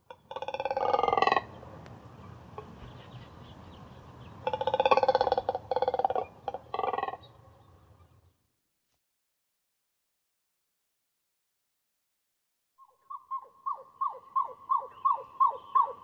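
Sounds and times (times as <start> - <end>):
cormorant croaking: 0.0 - 1.7, 4.2 - 8.2, 13.1 - 16.0.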